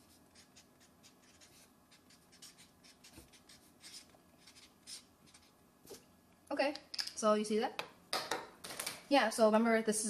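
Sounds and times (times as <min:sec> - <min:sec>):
marker scratching on paper: 0:00.0 - 0:05.6.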